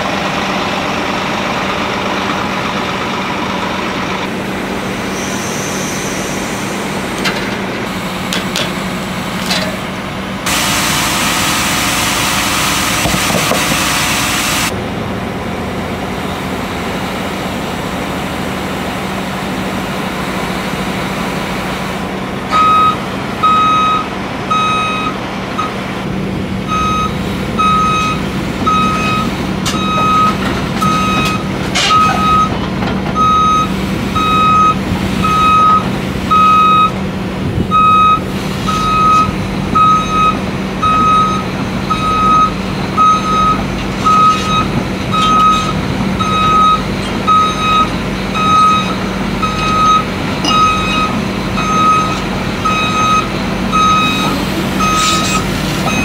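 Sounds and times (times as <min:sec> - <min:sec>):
diesel engine hum: 0:00.0 - 0:56.0
excavator travel alarm beeping: 0:22.5 - 0:25.8, 0:26.6 - 0:37.0, 0:37.7 - 0:56.0.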